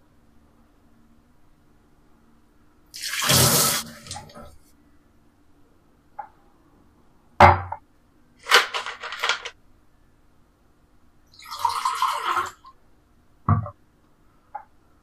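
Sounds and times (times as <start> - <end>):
knock on kitchen counter: 7.4 - 7.8, 13.5 - 13.8
crackly plastic handling: 8.4 - 9.6
drink pouring into glass: 11.3 - 12.7.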